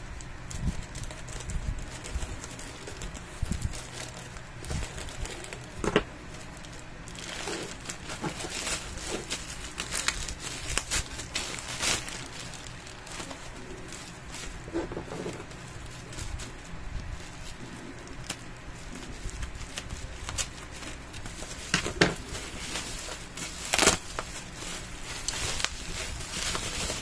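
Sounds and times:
plastic bag crinkling and rustling: 0.0 - 27.0
scissors cutting plastic: 19.0 - 27.0.

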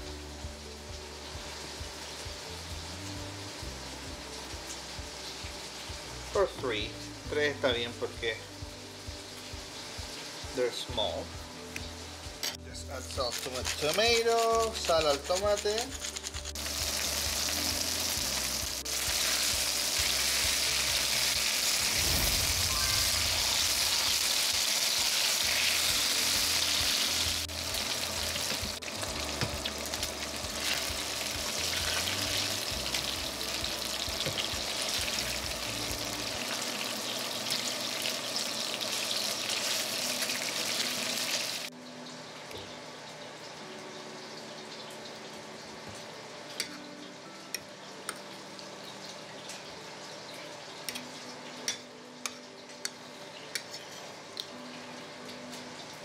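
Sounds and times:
patties sizzling in a frying pan: 0.0 - 41.7.

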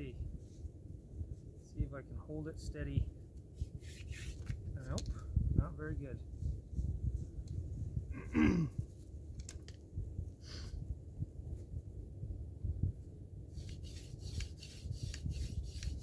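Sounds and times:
scratchy rubbing of hand drill: 3.7 - 4.5, 13.6 - 16.0.

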